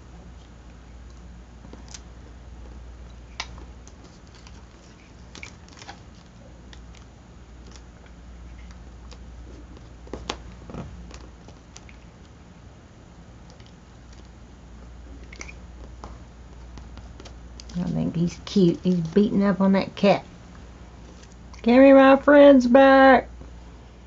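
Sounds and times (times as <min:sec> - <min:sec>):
low steady hum: 0:00.0 - 0:24.0
paper rustling and crinkling: 0:03.4 - 0:07.9.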